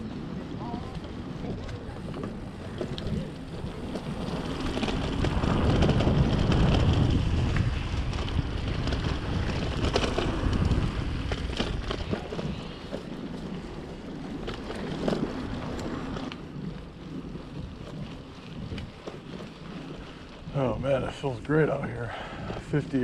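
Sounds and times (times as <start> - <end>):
bike clicks and rattles: 0.0 - 23.0
tyres rolling on dirt trail: 0.0 - 23.0
wind buffeting microphone: 0.0 - 23.0.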